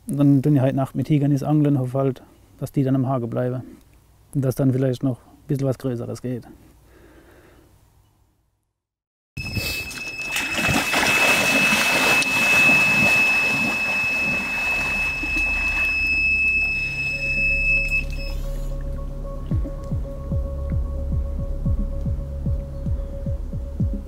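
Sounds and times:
bite alarm high tone: 9.4s - 18.8s
waders splashing through water: 9.8s - 17.0s
music with low hum: 13.2s - 24.0s.

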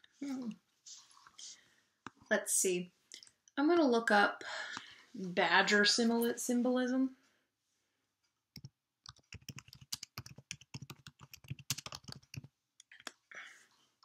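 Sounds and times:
computer keyboard typing: 8.6s - 13.1s.

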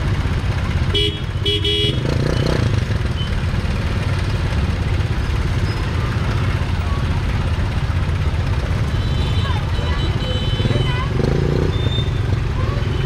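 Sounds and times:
motorbike engines rumbling: 0.0s - 13.0s
street traffic: 0.0s - 13.0s.

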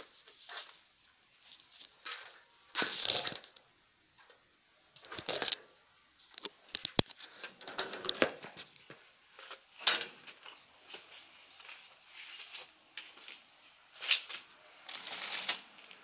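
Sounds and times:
cloth rustling against microphone: 0.0s - 2.2s.

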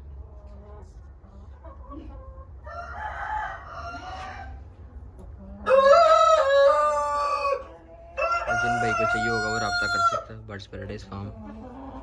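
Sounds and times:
rooster crowing: 2.6s - 4.6s, 5.6s - 7.6s, 8.2s - 10.3s.

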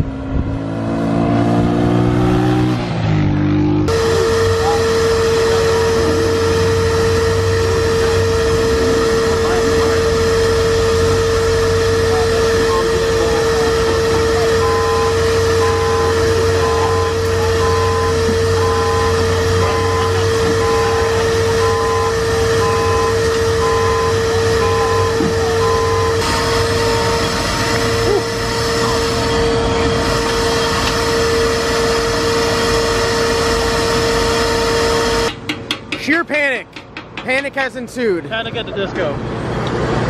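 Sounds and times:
machine drone and whine: 0.0s - 35.9s
regular beep: 12.4s - 31.5s.

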